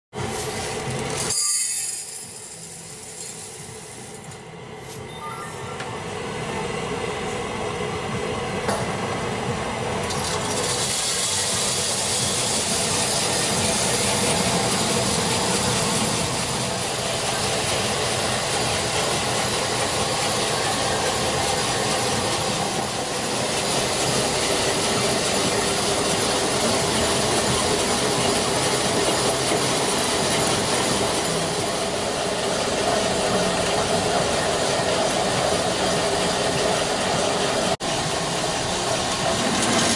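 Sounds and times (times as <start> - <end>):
beans tumbling in roaster drum: 10.0 - 22.6.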